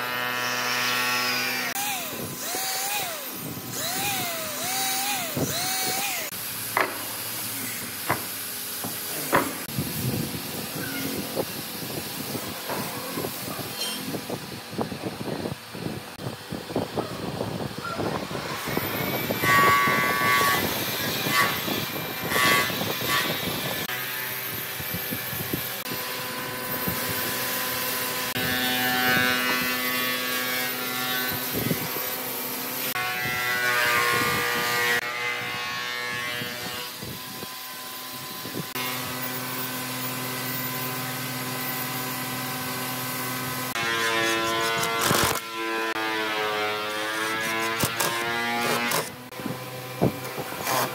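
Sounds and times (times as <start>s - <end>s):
power tool motor running: 0.0s - 12.4s, 36.4s - 50.9s
hand tool scraping wood: 43.7s - 49.2s.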